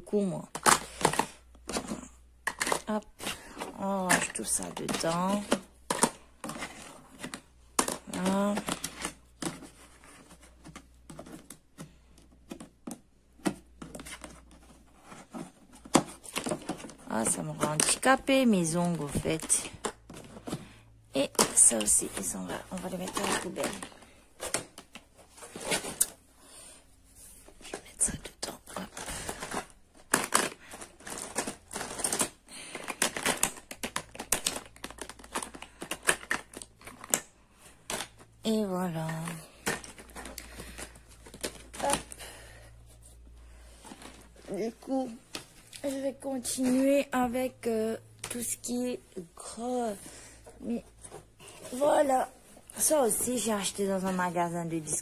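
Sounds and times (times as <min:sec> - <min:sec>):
plastic items clicking in plastic box: 0:00.4 - 0:14.7, 0:15.3 - 0:26.2, 0:27.7 - 0:42.3
plastic makeup items clicking: 0:00.5 - 0:03.0, 0:03.6 - 0:09.7, 0:28.1 - 0:38.3.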